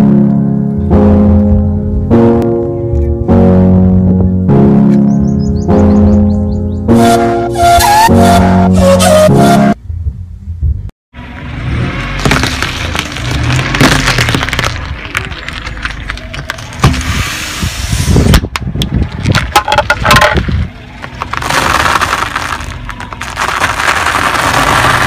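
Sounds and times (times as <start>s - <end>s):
instant noodles crackling under tyre: 11.5s - 25.0s.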